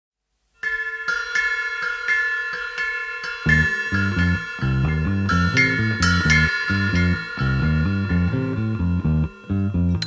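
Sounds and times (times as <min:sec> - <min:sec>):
chiming struck notes: 0:00.6 - 0:10.0
low bass line: 0:03.5 - 0:10.0.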